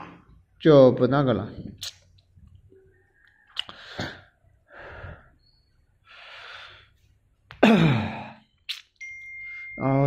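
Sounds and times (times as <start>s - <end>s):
man breathing close to microphone: 3.6s - 7.2s.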